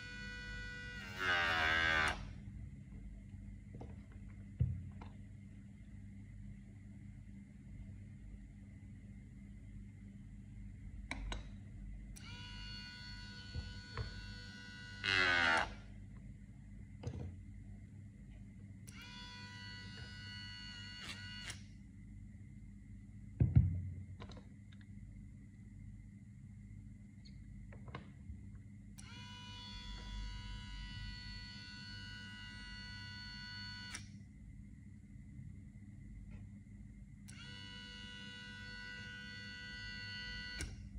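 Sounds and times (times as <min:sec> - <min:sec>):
small motor whine: 0:00.0 - 0:02.3, 0:12.2 - 0:15.8, 0:18.9 - 0:21.6, 0:29.0 - 0:34.1, 0:37.3 - 0:40.9
motor switch click: 0:40.6 - 0:40.8.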